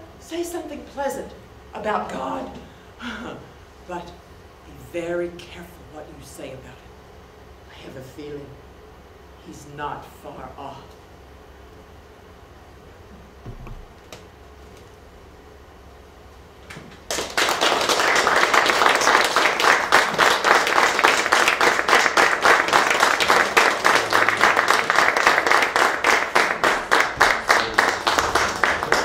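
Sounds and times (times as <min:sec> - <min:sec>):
audience applauding: 0:17.1 - 0:29.0.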